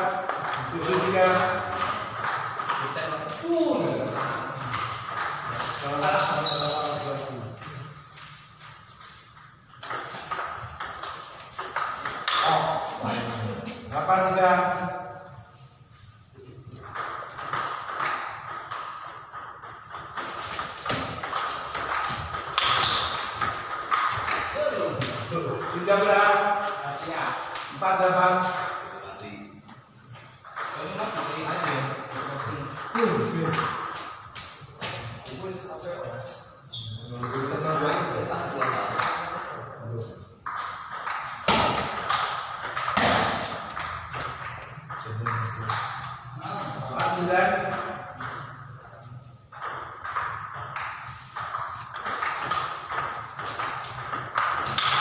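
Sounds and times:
table tennis ball hits: 0.1 - 7.1, 8.2 - 14.4, 16.8 - 26.8, 40.4 - 48.6, 49.5 - 55.0
ball bouncing on table: 16.8 - 26.8, 40.4 - 48.6, 49.5 - 55.0.

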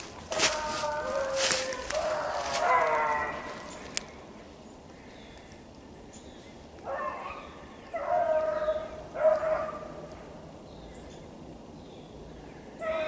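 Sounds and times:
dog baying: 0.3 - 3.7.

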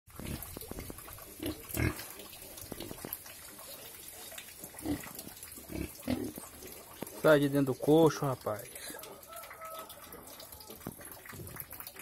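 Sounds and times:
pigs grunting: 1.4 - 2.1.

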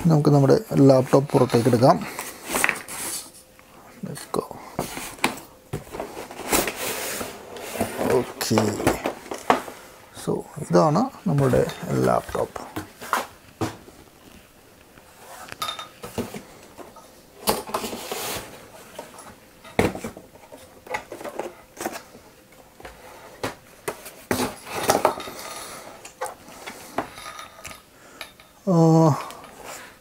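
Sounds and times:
cardboard knocking and rustling: 11.4 - 13.9.

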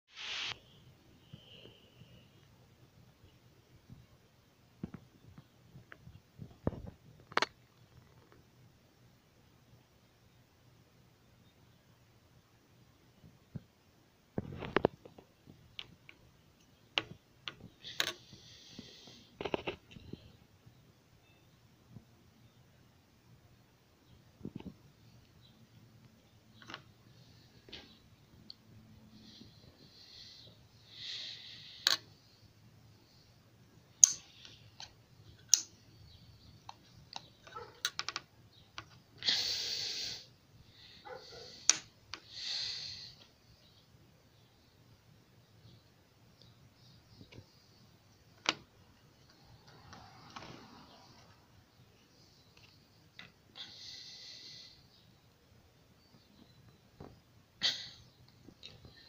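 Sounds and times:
brief hiss: 0.1 - 0.8.

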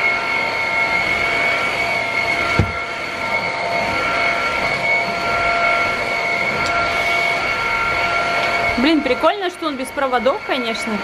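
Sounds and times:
vacuum cleaner running: 0.0 - 11.0
dull bump: 2.6 - 2.8.

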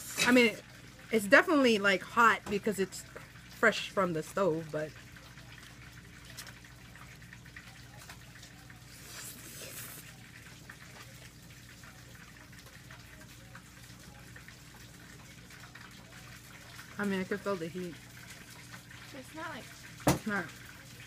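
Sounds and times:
slurping noodles: 8.9 - 10.2.

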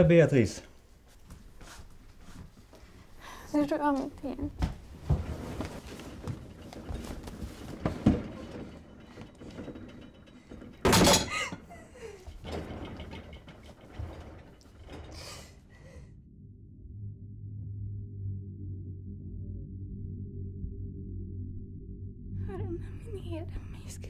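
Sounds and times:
thumps and knocks of struggle: 4.6 - 11.6
low music drone: 16.1 - 24.0.

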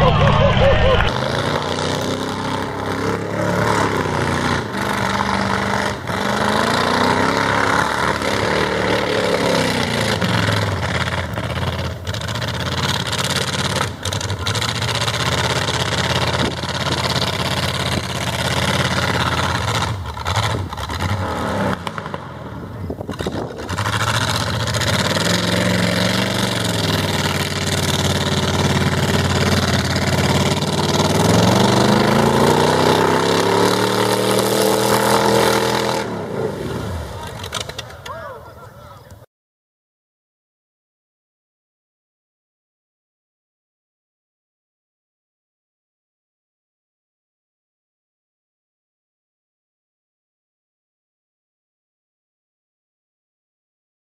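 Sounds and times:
truck engine revving: 0.0 - 38.1
tyres churning through mud: 0.0 - 38.7.

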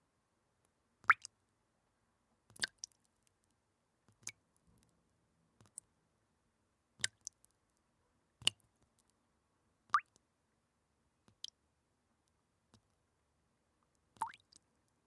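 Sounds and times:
water dripping from faucet: 1.0 - 1.3, 2.5 - 3.0, 4.1 - 4.4, 7.0 - 7.5, 9.9 - 10.2, 11.3 - 11.6, 14.2 - 14.7.

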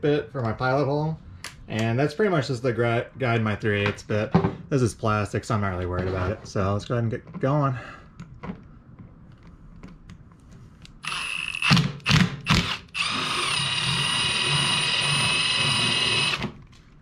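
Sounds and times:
cordless drill whining: 11.0 - 16.6.

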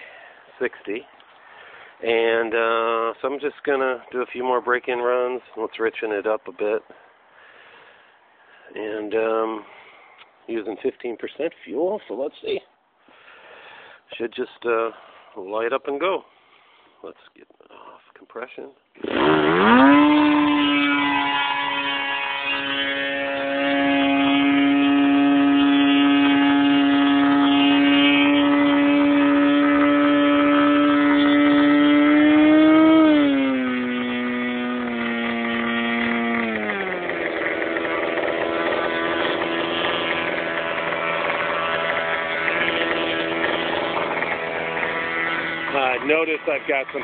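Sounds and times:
model glow engine running: 19.0 - 47.0.

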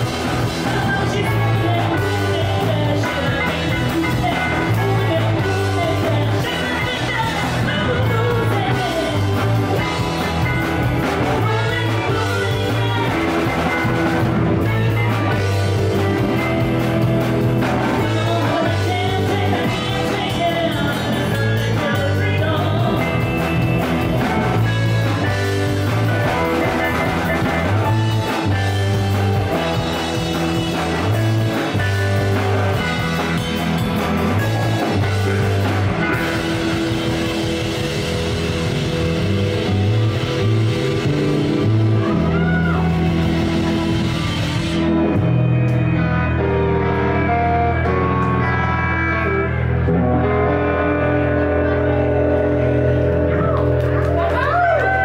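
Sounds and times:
funk band playing: 0.0 - 55.0
woman singing: 0.4 - 10.0, 11.2 - 16.4, 17.7 - 23.5.

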